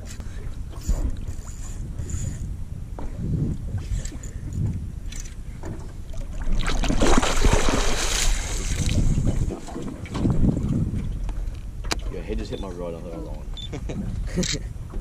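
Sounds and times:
wind buffeting microphone: 0.0s - 15.0s
fish splashing at water surface: 6.5s - 9.9s.

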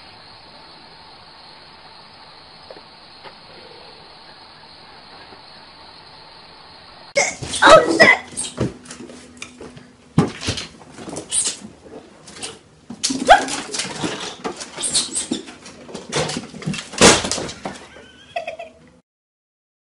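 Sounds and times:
scuffling and knocks: 7.4s - 18.0s
dog crying: 7.6s - 8.6s, 13.2s - 15.4s.

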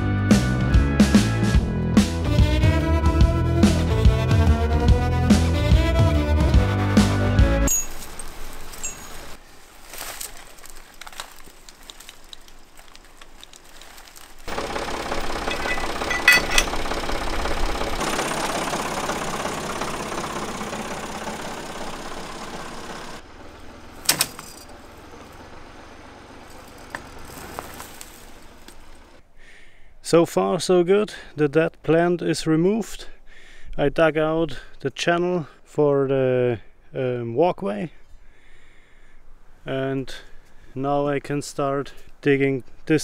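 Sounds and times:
vehicle engine under load: 10.2s - 29.2s
sharp crack: 24.0s - 24.9s.

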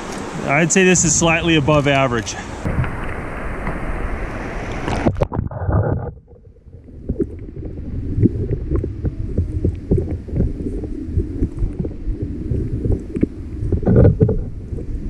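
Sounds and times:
fast stream rushing: 0.0s - 5.7s
muffled underwater current rumble: 1.2s - 15.0s
faint underwater ticks: 4.7s - 15.0s.

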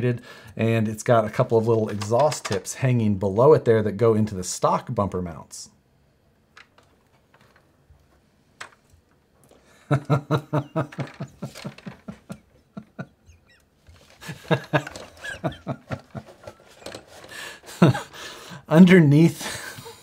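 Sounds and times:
man laughing hard: 9.8s - 13.5s, 14.2s - 16.6s, 17.6s - 18.2s, 19.4s - 20.0s.

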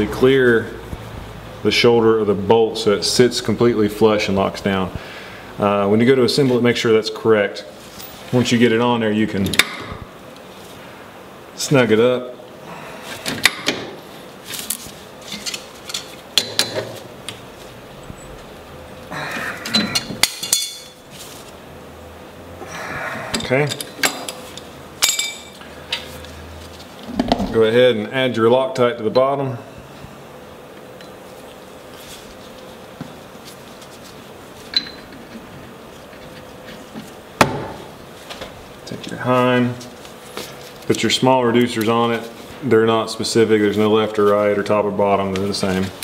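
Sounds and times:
faint shop hum: 0.0s - 46.0s
hand tools clinking against metal: 19.6s - 21.0s, 25.0s - 25.6s.

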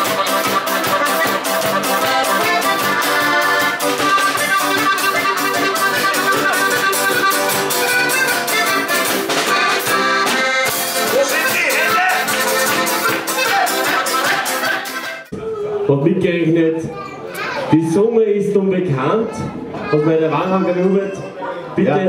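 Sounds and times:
button accordion: 0.0s - 15.3s
folk-pop dance band: 0.0s - 15.4s.

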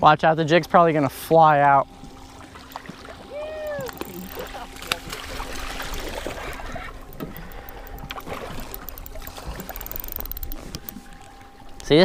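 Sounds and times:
fish splashing in water: 2.1s - 10.9s.

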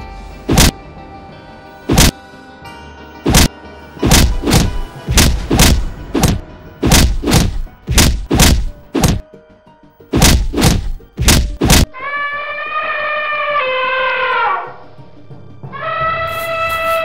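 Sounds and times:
background music: 0.0s - 17.0s
cartoon fight hits: 0.5s - 0.7s, 1.9s - 2.2s, 3.3s - 9.2s, 10.1s - 11.9s.

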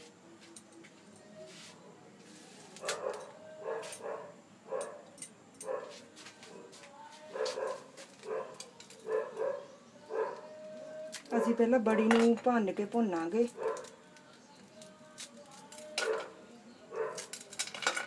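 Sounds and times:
dog barking: 2.8s - 5.0s, 5.6s - 6.0s, 7.4s - 10.5s, 13.6s - 13.9s, 16.9s - 17.3s.

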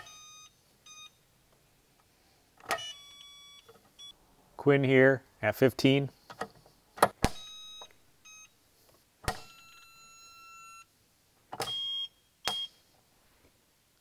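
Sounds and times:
electronic beeps: 0.0s - 1.2s, 7.4s - 8.5s, 11.6s - 12.8s.

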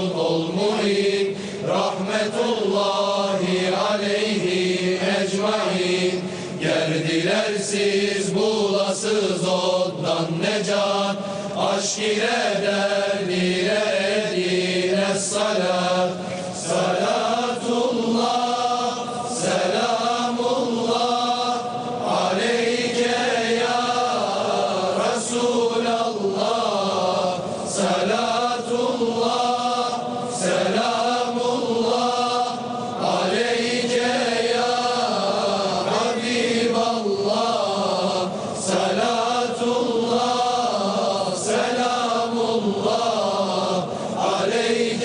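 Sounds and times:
singer breathing: 1.3s - 1.7s, 6.2s - 6.6s, 11.2s - 11.6s, 43.9s - 44.2s.

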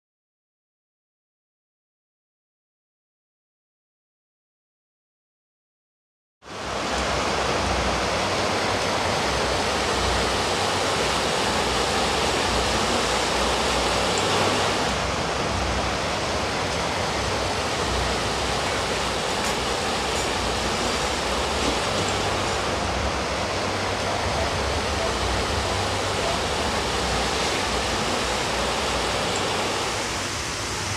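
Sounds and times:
stream rushing over rocks: 6.5s - 30.9s.

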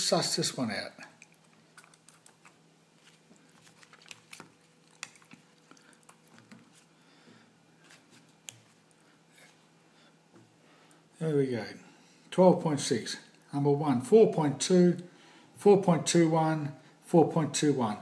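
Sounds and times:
low steady hum: 0.0s - 18.0s.

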